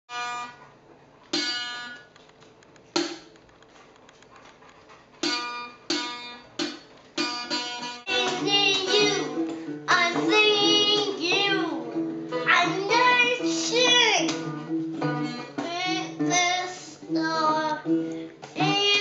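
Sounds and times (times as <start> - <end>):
small acoustic guitar strummed: 0.1 - 0.7, 1.3 - 2.1, 5.2 - 19.0.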